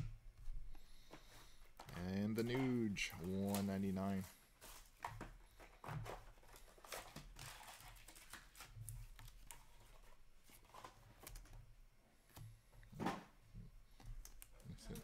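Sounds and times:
trading cards rustling and clicking: 1.1s - 11.6s.

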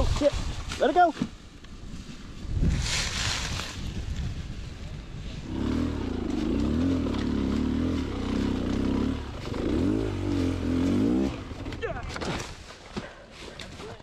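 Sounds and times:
dirt bike engine running: 5.4s - 12.0s.

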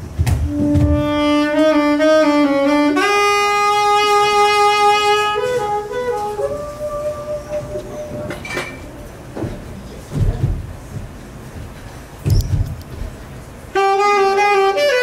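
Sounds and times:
solo saxophone: 0.4s - 9.2s, 13.7s - 15.0s.

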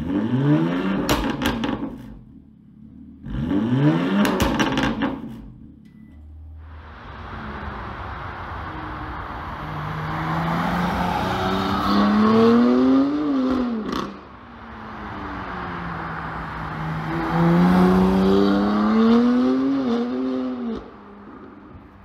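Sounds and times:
car engine accelerating past: 6.6s - 14.2s, 15.0s - 21.5s.

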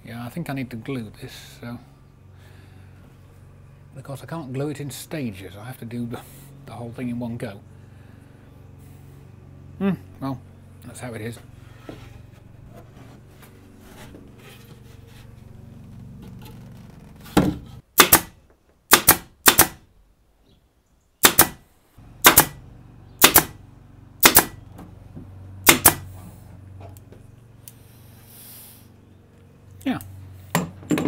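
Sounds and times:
pin nailer firing: 18.0s - 19.9s, 21.2s - 21.6s, 22.2s - 22.6s, 23.2s - 23.6s, 24.2s - 24.6s, 25.6s - 26.1s.

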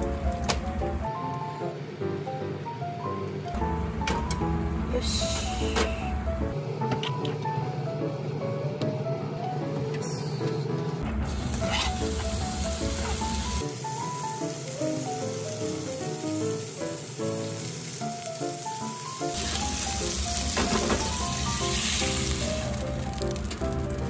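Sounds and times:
light background melody: 0.0s - 24.0s
fish sizzling in a frying pan: 11.4s - 24.0s.

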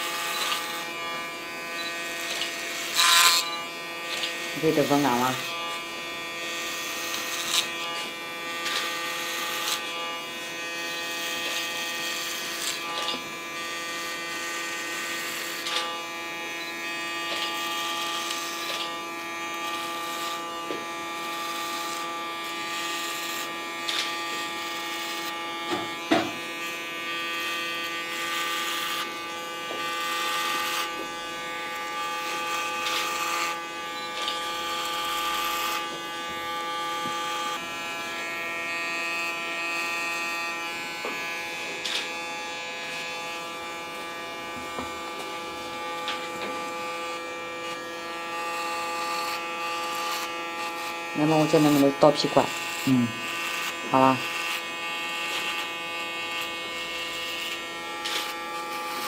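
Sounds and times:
electric hair clipper buzzing: 0.0s - 59.0s
clipper blades rasping through hair: 0.1s - 37.6s, 41.8s - 59.0s.

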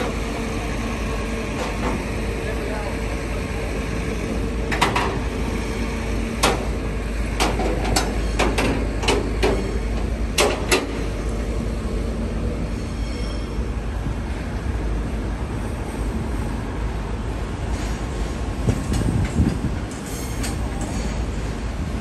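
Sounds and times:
tow truck low rumble: 0.0s - 22.0s
metallic clanks and knocks: 4.7s - 5.2s, 7.4s - 9.7s, 10.4s - 11.0s.

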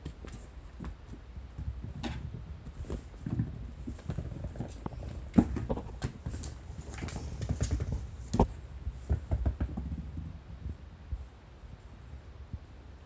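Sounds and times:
kittens scampering and pouncing: 0.0s - 10.8s.

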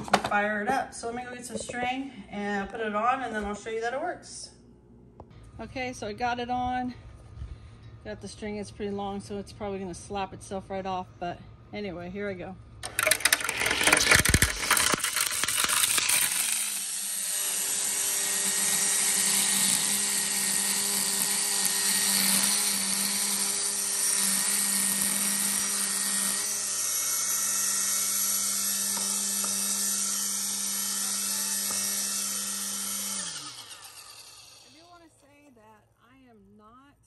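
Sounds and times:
electric string trimmer cutting grass: 12.8s - 35.3s.

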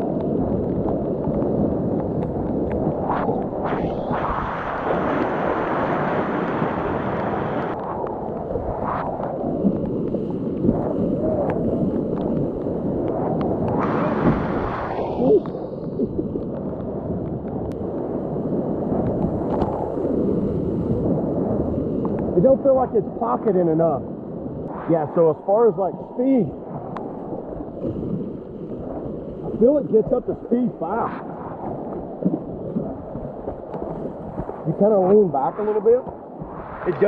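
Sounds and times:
water splashes: 0.0s - 23.9s, 24.6s - 37.0s.

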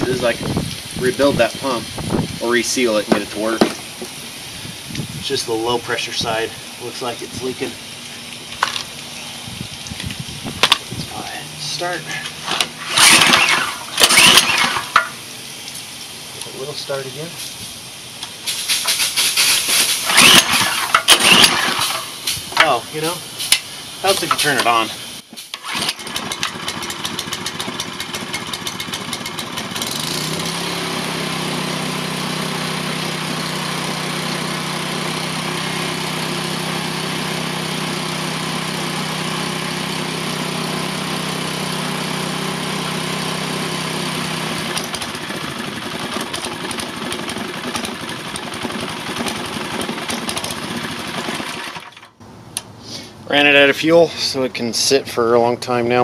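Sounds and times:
small gasoline engine running: 10.6s - 15.3s, 18.7s - 23.2s, 25.6s - 52.2s.

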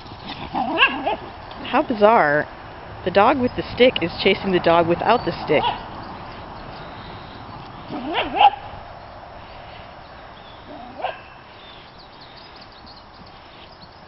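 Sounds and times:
dog barking: 0.6s - 1.2s, 7.9s - 8.7s, 10.7s - 11.4s.

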